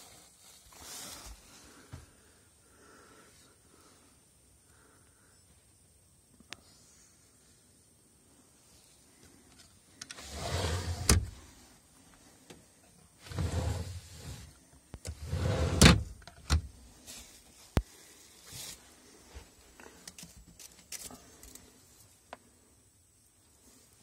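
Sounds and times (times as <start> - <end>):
window scraping in frame: 10.2 - 11.3.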